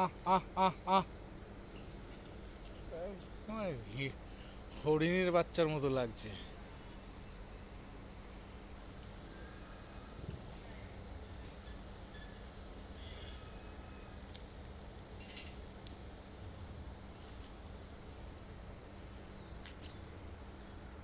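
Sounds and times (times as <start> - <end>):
cricket trilling: 0.0 - 21.0
faint clicks: 14.3 - 16.0.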